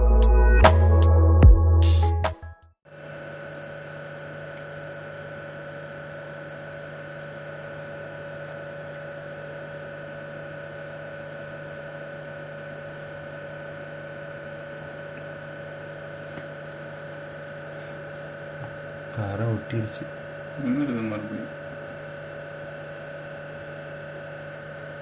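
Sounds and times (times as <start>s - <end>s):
night insects chorus: 2.9s - 25.0s
steady electrical hum: 2.9s - 25.0s.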